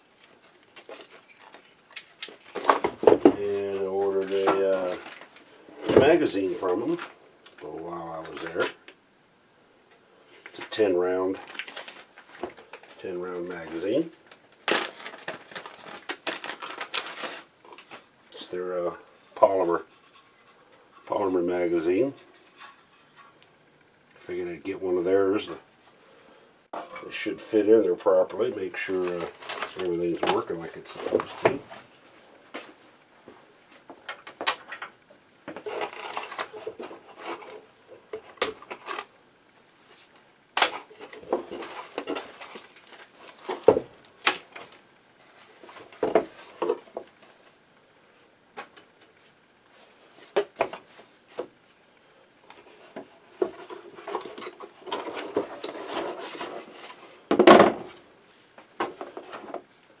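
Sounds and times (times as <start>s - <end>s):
rubbing and rustling: 19.0s - 23.4s, 35.4s - 39.1s, 39.7s - 48.3s, 52.5s - 58.0s.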